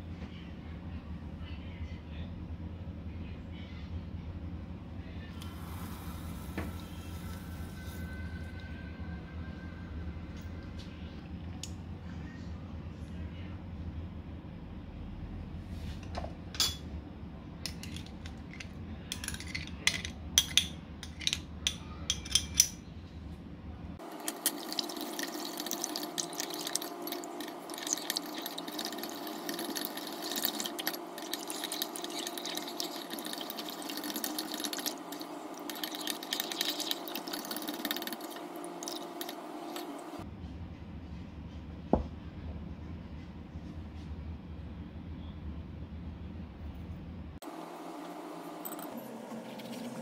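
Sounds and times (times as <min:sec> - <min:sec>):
faint steady hum: 0:00.0 - 0:40.3
metal spoon stirring liquid: 0:24.0 - 0:40.2.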